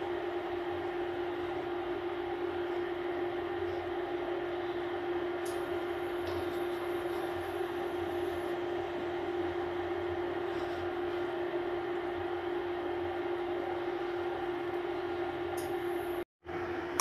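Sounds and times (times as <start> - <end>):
mechanical hum with steady tone: 0.0 - 17.0.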